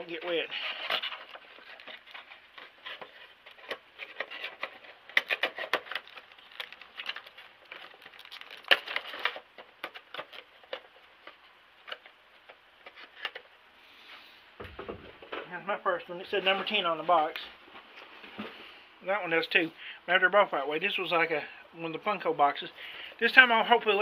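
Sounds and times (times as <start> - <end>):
packaging crinkling and rustling: 0.0 - 13.5.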